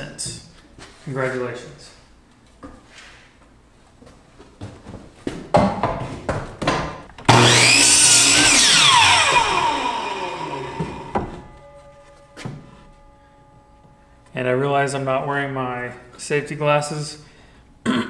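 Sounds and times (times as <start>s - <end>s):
electric miter saw cutting wood: 7.2s - 14.0s
saw blade winding down whine: 7.3s - 15.5s.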